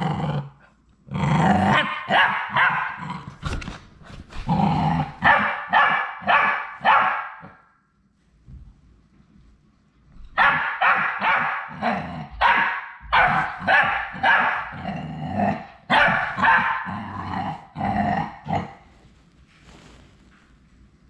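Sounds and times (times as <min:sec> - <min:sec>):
dog barking: 0:01.8 - 0:03.0, 0:05.2 - 0:07.7, 0:10.4 - 0:14.8, 0:15.9 - 0:17.0.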